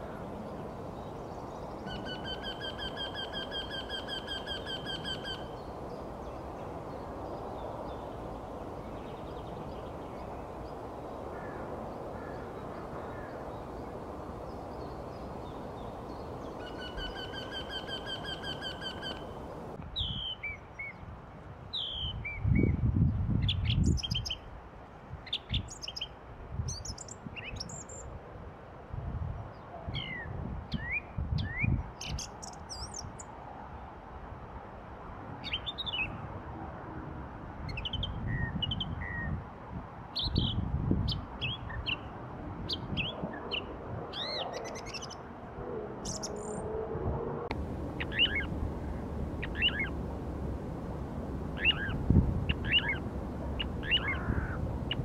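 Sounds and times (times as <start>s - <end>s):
low rumbles: 47.1s - 55.0s.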